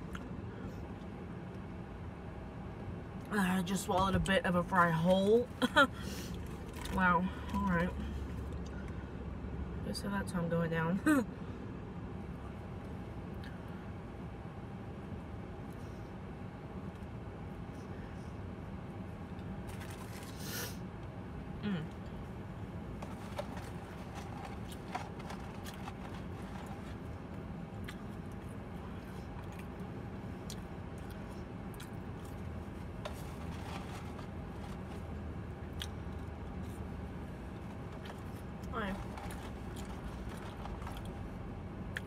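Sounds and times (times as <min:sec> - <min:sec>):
steady low car hum: 0:00.0 - 0:42.0
chewing burger: 0:23.0 - 0:36.9, 0:37.6 - 0:41.3.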